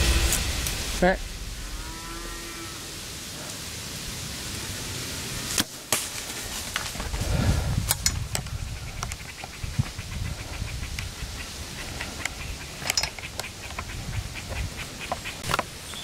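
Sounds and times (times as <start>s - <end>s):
deer running through dry leaves: 5.8s - 7.8s.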